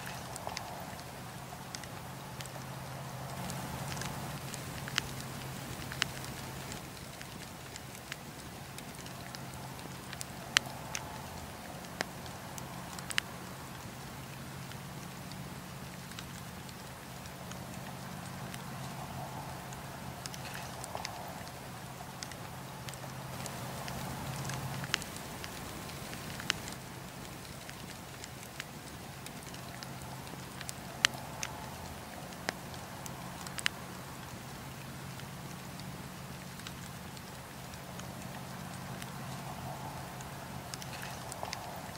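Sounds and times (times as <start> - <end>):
burning logs popping: 0.0 - 41.9
campfire crackling: 0.0 - 41.9
faint steady low hum: 0.0 - 41.9.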